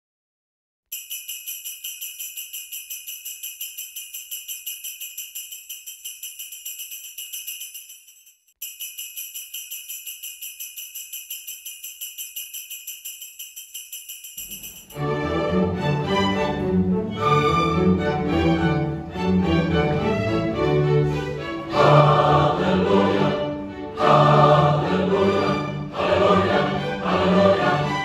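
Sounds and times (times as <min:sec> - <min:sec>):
jingling bells shaken: 0:00.9 - 0:15.2
orchestra playing: 0:15.0 - 0:28.0.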